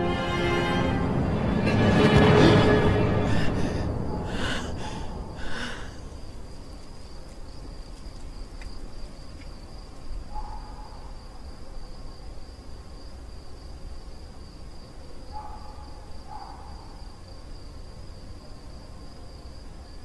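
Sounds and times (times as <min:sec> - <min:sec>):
film music: 0:00.0 - 0:06.5
cricket chirping: 0:00.0 - 0:20.0.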